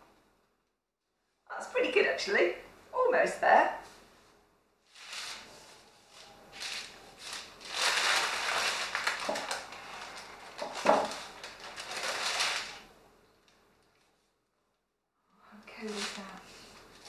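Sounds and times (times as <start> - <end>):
paper rustling and crinkling: 4.9 - 12.9, 15.7 - 17.0.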